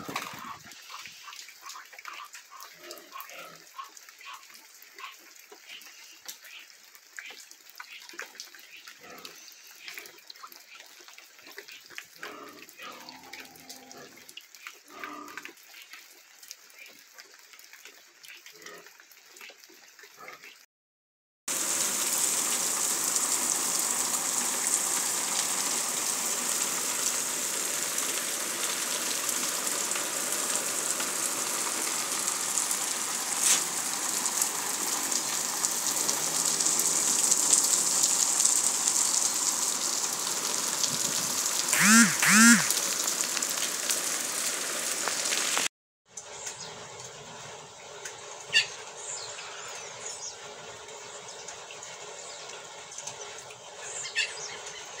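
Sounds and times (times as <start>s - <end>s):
steady rain: 21.5s - 45.7s
animal calls: 41.7s - 42.8s, 53.9s - 54.6s.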